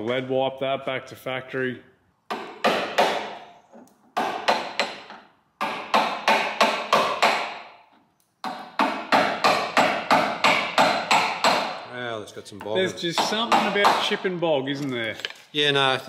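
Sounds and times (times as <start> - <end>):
hammer blows chipping filler: 2.3 - 11.9, 13.0 - 14.4.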